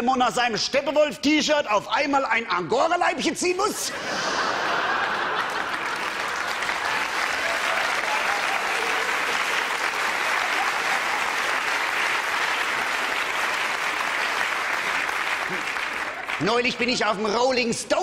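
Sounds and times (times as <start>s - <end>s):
audience applauding: 4.2s - 17.2s.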